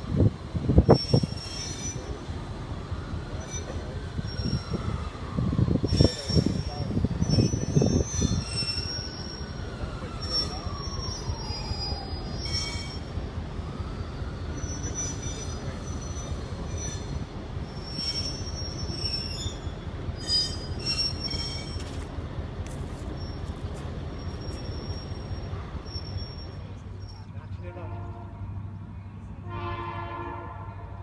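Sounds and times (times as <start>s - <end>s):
metal wheels squealing: 0.8s - 2.2s, 3.3s - 5.0s, 5.8s - 13.2s, 14.4s - 22.1s, 23.0s - 27.4s.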